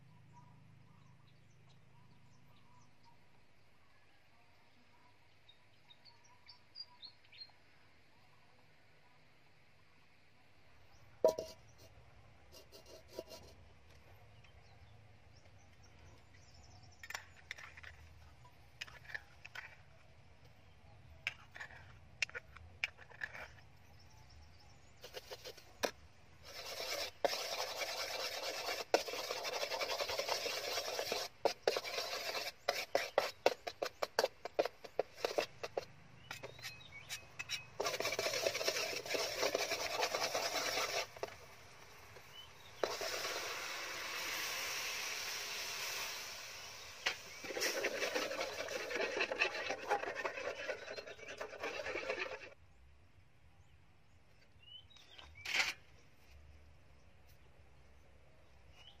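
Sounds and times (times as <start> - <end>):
metal spoon scraping a wok: 11.2 - 11.9, 12.5 - 13.6, 25.0 - 52.6
paste sizzling in hot oil: 25.0 - 52.6.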